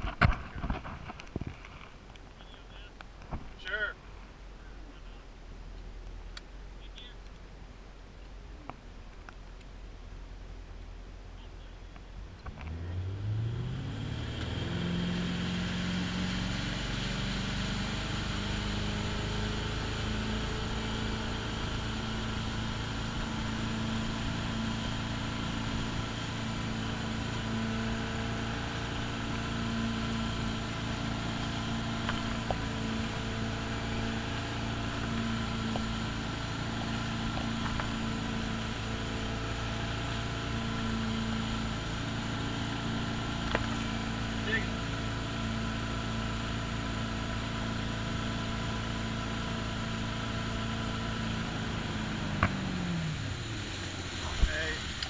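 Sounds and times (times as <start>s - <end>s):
boat engine accelerating: 12.3s - 55.0s.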